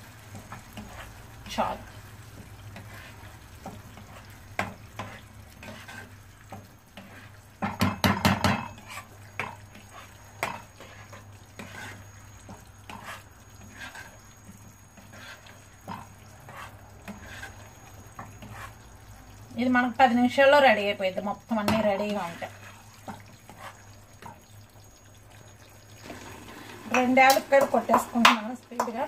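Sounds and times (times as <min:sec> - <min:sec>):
spoon scraping a metal pan: 0:03.9 - 0:06.2, 0:07.0 - 0:14.3, 0:14.9 - 0:18.9, 0:21.6 - 0:24.4
loud knocks against a pan: 0:07.6 - 0:08.8.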